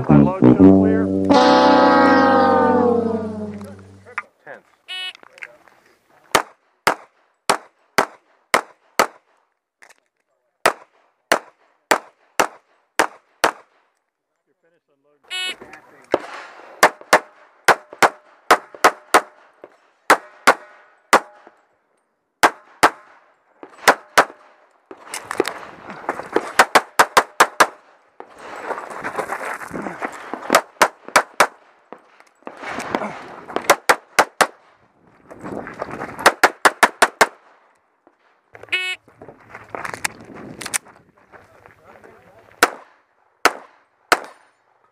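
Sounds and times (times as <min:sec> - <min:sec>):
pistol shots: 0:42.6 - 0:44.4.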